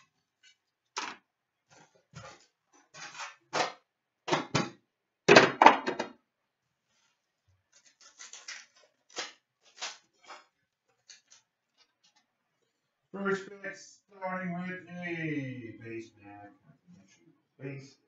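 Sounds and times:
foil pack rustling: 6.9s - 12.2s.

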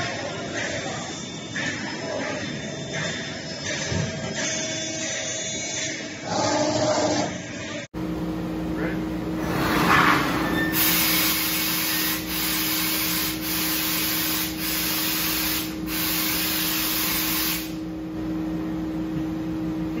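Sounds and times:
steady low hum: 0.0s - 20.0s
gas hissing from laser cutter: 10.6s - 17.8s.

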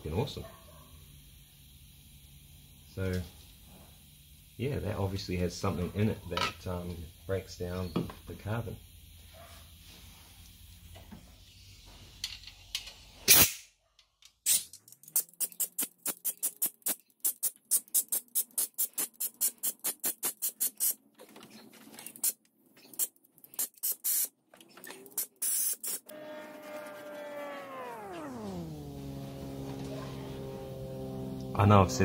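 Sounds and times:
compressed-air blow gun puffs: 15.2s - 21.0s.

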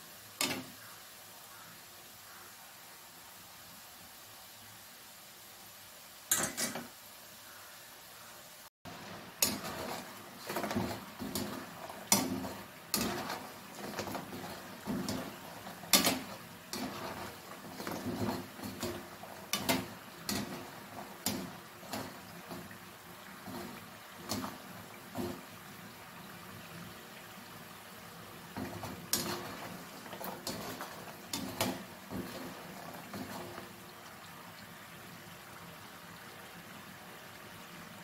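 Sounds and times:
oil bubbling: 0.0s - 38.0s
skimmer knocking and scraping pan: 6.3s - 6.9s, 8.9s - 25.6s, 28.5s - 33.8s.

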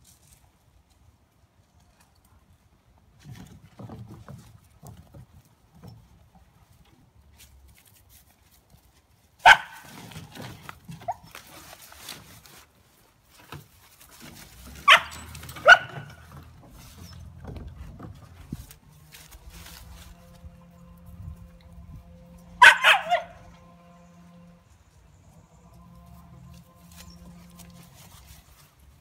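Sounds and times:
paws shuffling on wooden deck: 3.2s - 21.4s
young dogs barking: 9.4s - 9.9s, 14.8s - 16.3s, 22.6s - 23.5s.

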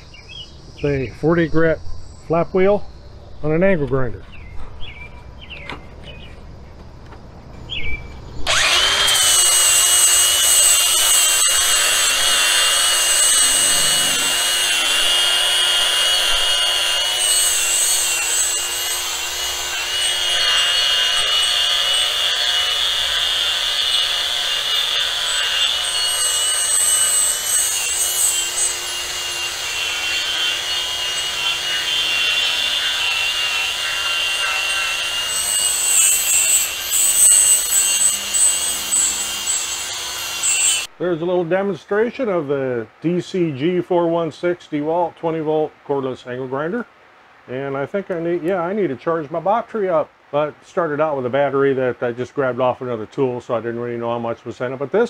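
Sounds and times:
angle grinder motor whine: 8.4s - 40.9s
flap wheel rasping on metal: 8.5s - 40.9s.

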